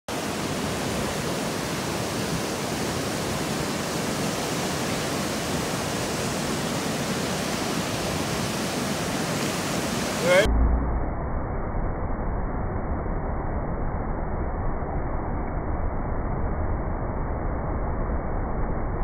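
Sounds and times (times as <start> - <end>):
water rushing through spillway: 0.1 - 10.5.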